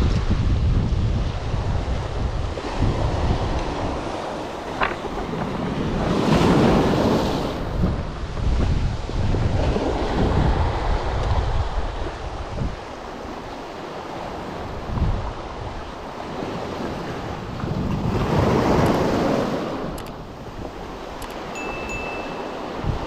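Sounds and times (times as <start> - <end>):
wind rumbling on microphone: 0.0 - 23.0.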